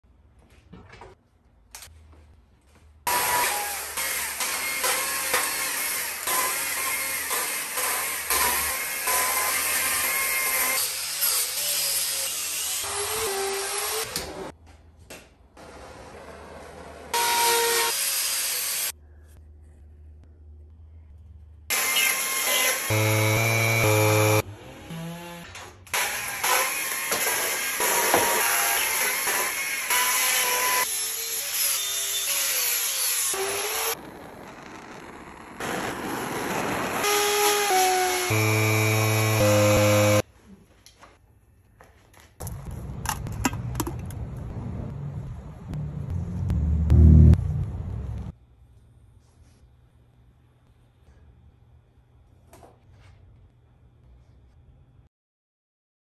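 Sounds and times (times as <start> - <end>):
electric drill running: 21.7 - 25.0, 37.0 - 40.2
rotary grinder whine: 21.7 - 25.1, 26.0 - 40.2
chainsaw cutting wood: 21.7 - 30.9, 35.6 - 40.2.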